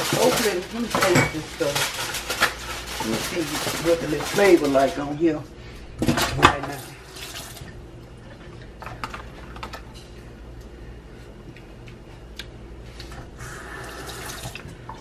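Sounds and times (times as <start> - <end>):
kitchen utensils clicking: 0.0 - 4.7
steady low hum: 0.0 - 15.0.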